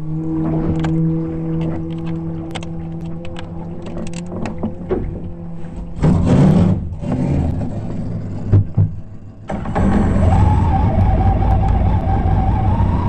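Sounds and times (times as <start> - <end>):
water rushing over hull: 0.0 - 6.9
boat engine running hard: 0.0 - 13.0
thumps: 8.4 - 9.7.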